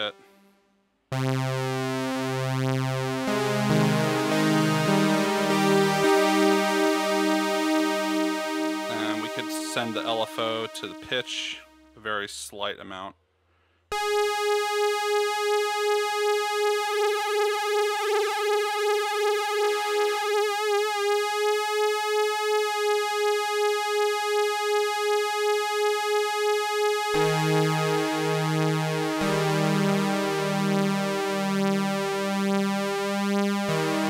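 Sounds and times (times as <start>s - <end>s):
synthesizer chord: 0.0s - 12.1s, 13.9s - 34.0s
synthesizer note pulsing: 0.0s - 12.1s, 13.9s - 26.4s.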